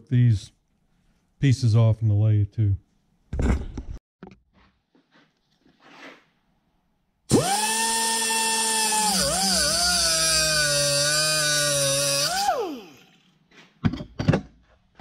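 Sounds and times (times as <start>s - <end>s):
cutoff tool whining: 7.3s - 13.2s.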